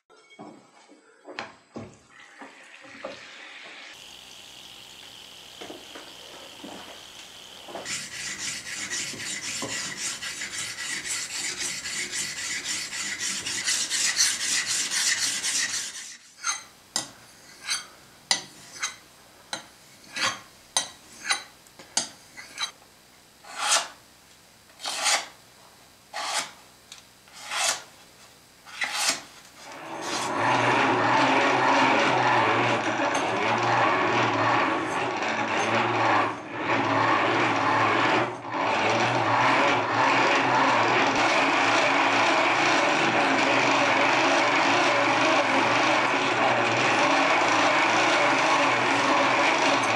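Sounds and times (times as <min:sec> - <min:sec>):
buffing wheel humming: 0:03.7 - 0:13.9
knife scraping on whetstone: 0:07.8 - 0:22.8, 0:23.4 - 0:24.0, 0:24.8 - 0:25.4, 0:26.1 - 0:26.6, 0:27.3 - 0:27.9, 0:28.7 - 0:31.0.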